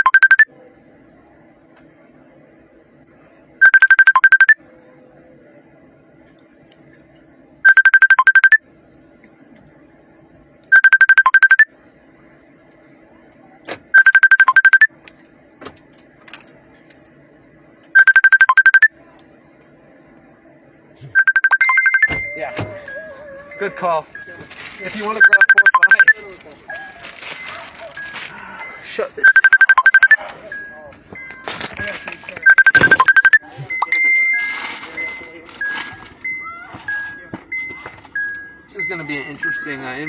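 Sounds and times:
telephone ringtone trilling: 0.0s - 0.5s, 3.6s - 4.6s, 7.6s - 8.6s, 10.7s - 11.7s, 14.0s - 14.9s, 18.0s - 18.9s, 21.2s - 26.3s, 29.2s - 31.5s, 32.4s - 39.7s.

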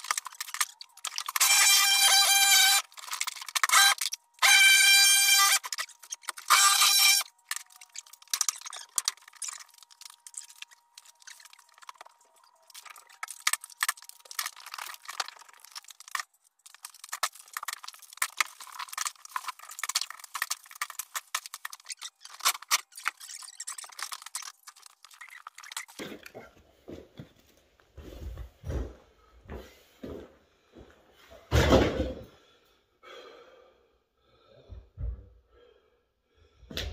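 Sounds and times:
wood cracking and splintering: 0.0s - 26.0s.

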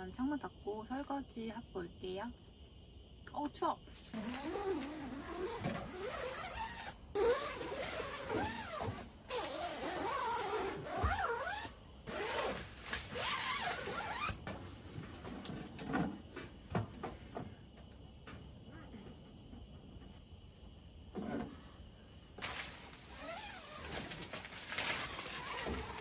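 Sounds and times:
tent zippers being zipped: 4.1s - 14.4s, 22.4s - 26.0s.

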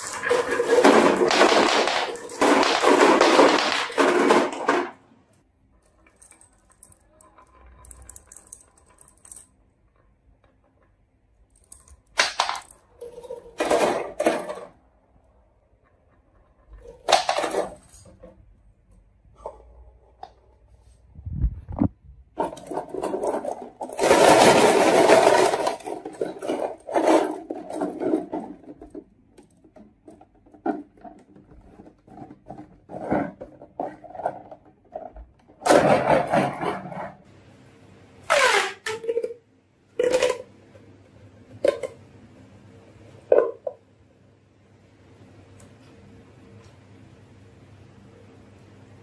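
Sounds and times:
marbles rattling in plastic bottle: 0.0s - 4.7s, 22.4s - 29.0s.

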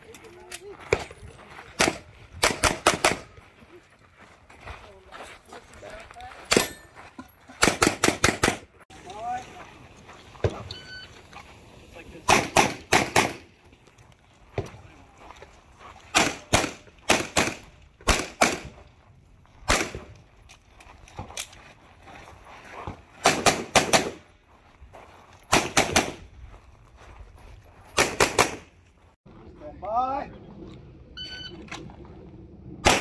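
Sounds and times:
pistol shots: 1.8s - 3.3s, 7.6s - 8.6s, 12.3s - 13.5s, 16.1s - 18.8s, 19.7s - 20.1s, 23.2s - 24.2s, 25.5s - 26.2s, 28.0s - 28.7s.

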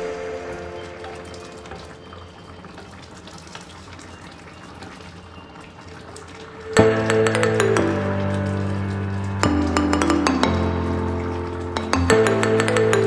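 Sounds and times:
background music: 0.0s - 2.5s, 6.6s - 13.0s
stew bubbling in a wok: 0.0s - 9.9s.

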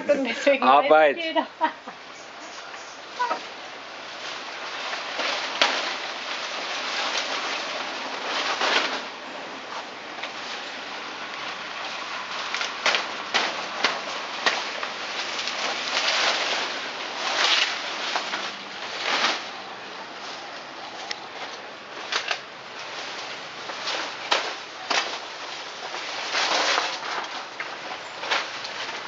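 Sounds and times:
dry leaves rustling and crackling: 0.0s - 29.0s
stalks snapping: 4.9s - 6.4s, 12.4s - 19.6s, 21.0s - 29.0s.

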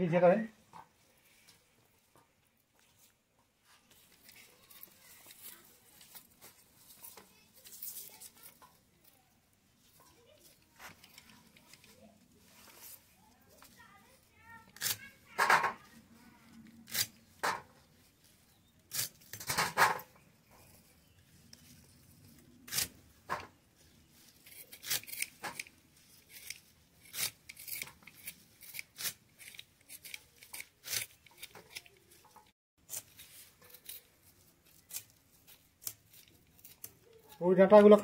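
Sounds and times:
knife cutting vegetable stalks: 14.6s - 15.9s, 16.6s - 17.7s, 18.8s - 23.5s, 24.1s - 38.0s.

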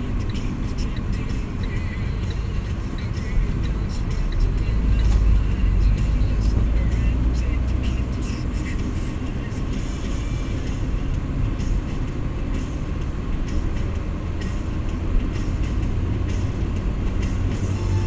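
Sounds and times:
car engine and road rumble: 0.0s - 18.0s.

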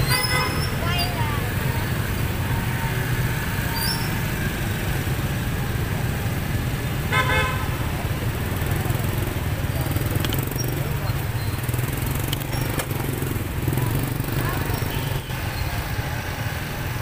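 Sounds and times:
vehicle horn honk: 0.0s - 0.7s, 7.1s - 7.7s
traffic engine rumble: 0.0s - 17.0s.

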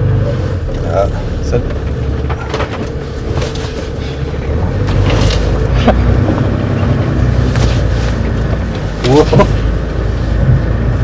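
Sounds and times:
engine pulling over rough ground: 0.0s - 11.0s
knocks and rattles: 1.4s - 9.6s.

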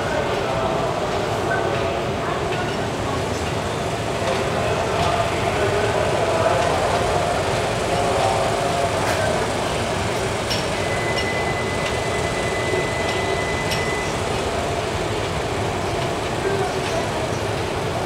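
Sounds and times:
thin steady whine: 4.6s - 14.9s.

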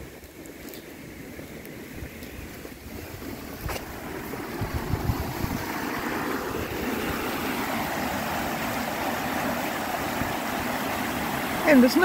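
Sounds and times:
stream rushing over rocks: 0.0s - 12.0s
wind thumps on microphone: 1.9s - 7.3s.

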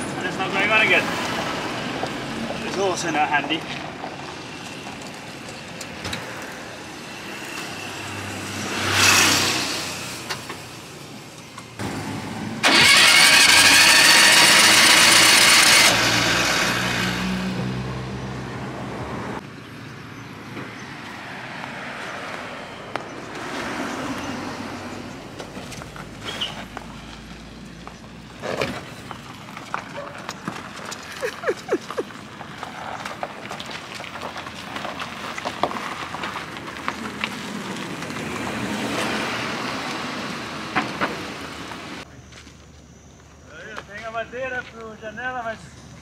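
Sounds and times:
passing vehicle: 0.0s - 42.1s
engine cranking without starting: 12.6s - 16.5s.

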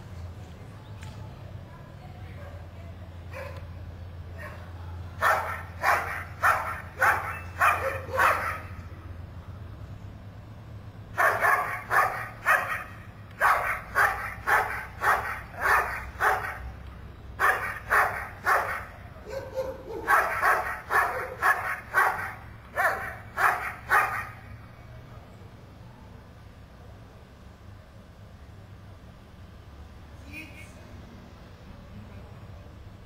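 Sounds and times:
dog barking sharply: 5.2s - 8.8s, 11.2s - 16.7s, 17.4s - 24.5s.

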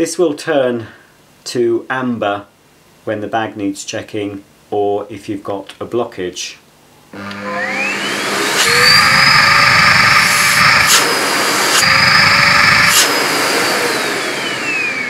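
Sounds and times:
vacuum motor whine: 7.2s - 15.0s.

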